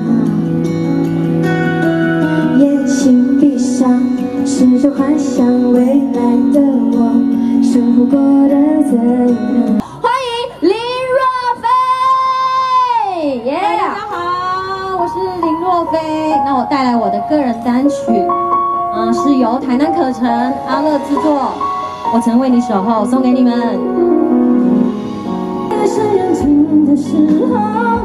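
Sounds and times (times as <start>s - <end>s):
woman singing: 0.0s - 0.5s, 2.2s - 18.2s, 25.7s - 28.0s
live pop band playing: 0.0s - 28.0s.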